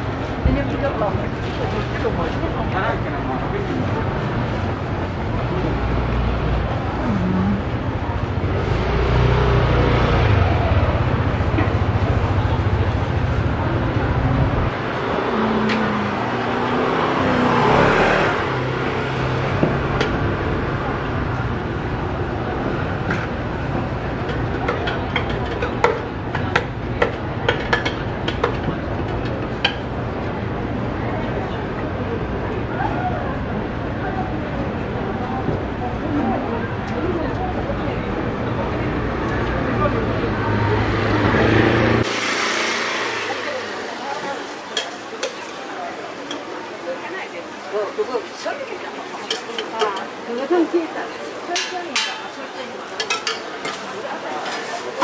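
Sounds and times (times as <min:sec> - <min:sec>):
faint voices: 0:00.0 - 0:55.0
market hum and rushing noise: 0:00.0 - 0:55.0
metal utensil clinking on pot: 0:49.2 - 0:50.1, 0:52.9 - 0:55.0.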